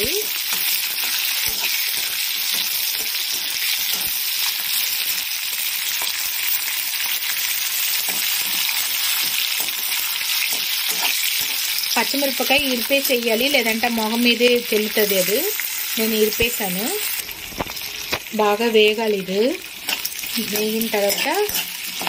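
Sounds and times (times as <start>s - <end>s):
vegetables sizzling in hot oil: 0.0s - 22.0s
metal spatula scraping: 0.1s - 5.2s, 7.8s - 11.8s, 19.8s - 22.0s.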